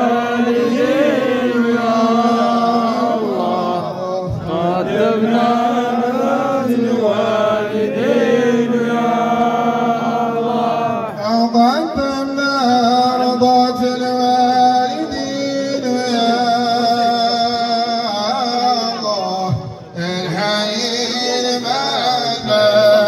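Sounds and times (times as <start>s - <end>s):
man chanting through loudspeakers: 10.9s - 23.0s.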